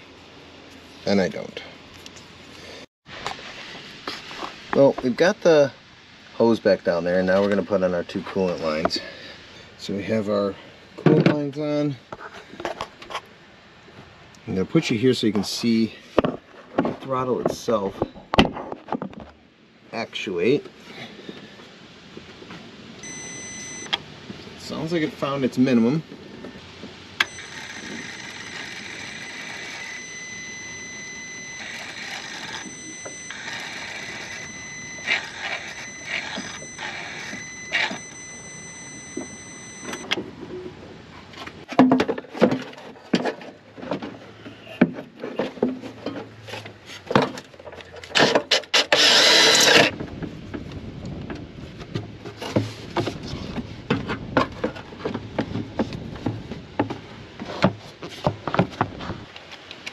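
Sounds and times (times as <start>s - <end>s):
throttle motor whine: 23.0s - 24.1s, 27.2s - 40.2s.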